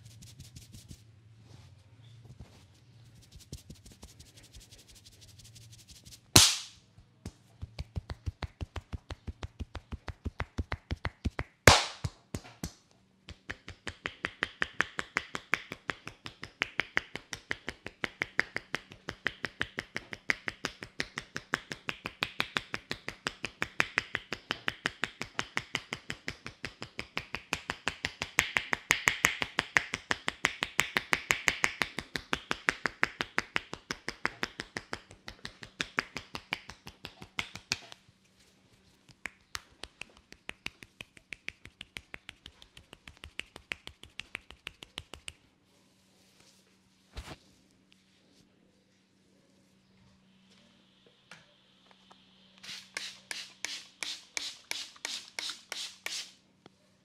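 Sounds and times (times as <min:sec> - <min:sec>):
hands tapping on scalp: 0:06.4 - 0:38.0, 0:39.1 - 0:45.4.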